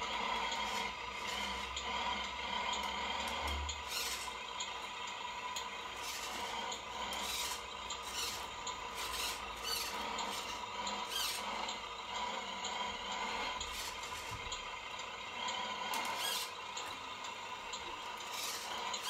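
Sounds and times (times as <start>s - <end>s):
electric drive whine: 0.0s - 19.0s
tyres scraping squeaks: 7.2s - 11.4s.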